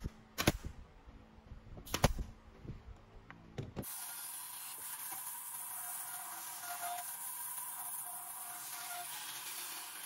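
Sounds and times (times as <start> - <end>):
pneumatic nailer firing: 0.0 - 0.8, 1.8 - 2.3.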